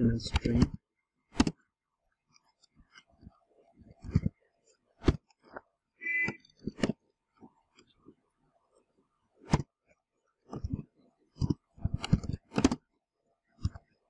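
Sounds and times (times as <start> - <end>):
short steady tone: 6.0 - 6.4.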